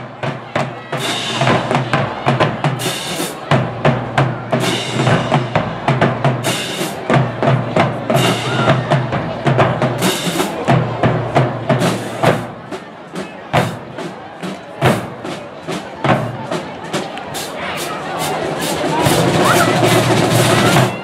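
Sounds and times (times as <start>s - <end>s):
bass drums: 0.0s - 12.7s
snare drums: 0.0s - 21.0s.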